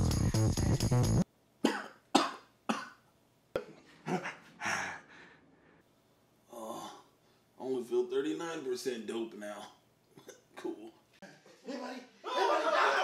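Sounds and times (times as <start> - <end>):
man coughing: 1.6 - 3.0.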